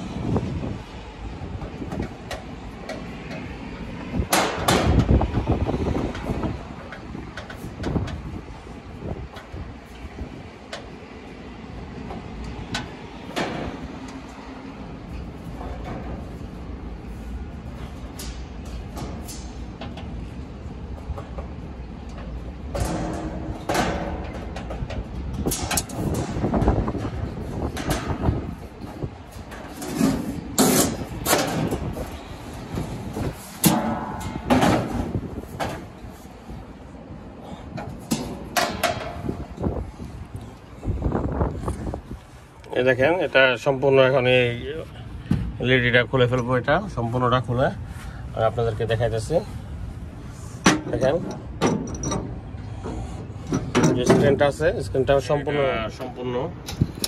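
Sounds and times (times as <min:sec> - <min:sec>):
metallic clicks and clanks: 0:21.0 - 0:28.2, 0:50.6 - 0:52.5
metal knocks and scrapes: 0:22.2 - 0:32.1.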